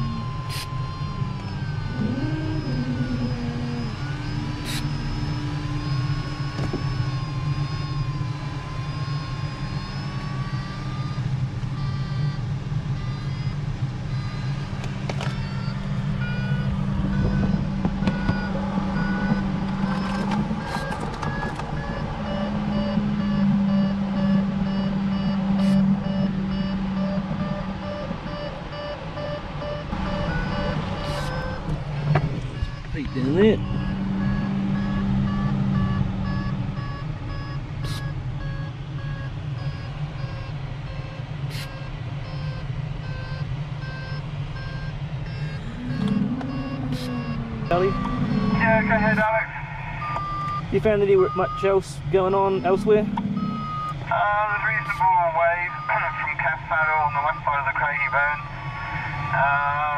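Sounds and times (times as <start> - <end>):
variometer beeping: 0.0 - 59.7
wavering variometer tone: 0.0 - 59.9.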